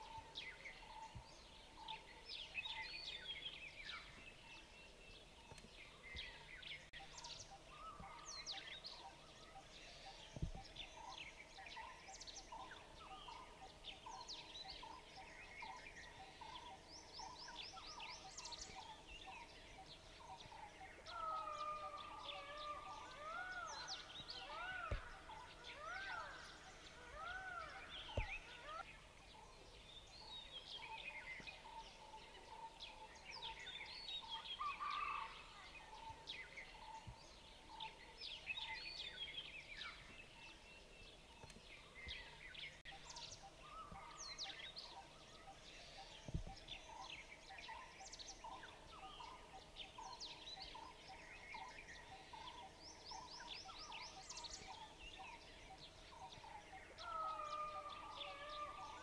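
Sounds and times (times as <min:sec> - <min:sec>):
repeated low bird notes: 0:00.0 - 0:34.9
birds chirping and whistling: 0:00.0 - 0:59.0
rising and falling bird call: 0:21.0 - 0:28.9.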